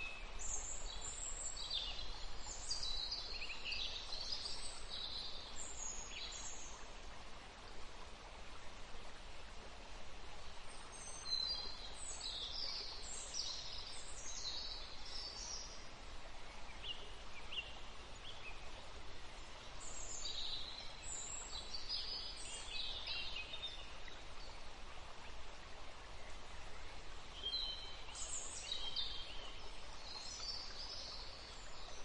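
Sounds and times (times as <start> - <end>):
background hiss: 0.0 - 32.0
songbirds chirping: 0.0 - 32.0.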